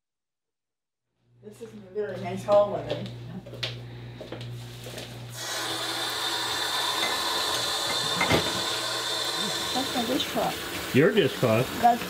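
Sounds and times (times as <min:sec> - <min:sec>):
water running into steel sink: 0:05.4 - 0:12.0
tap turned on: 0:07.0 - 0:08.6.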